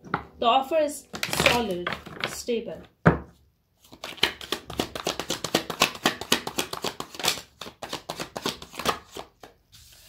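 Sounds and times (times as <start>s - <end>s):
cards being shuffled: 1.1s - 2.5s, 3.8s - 10.0s.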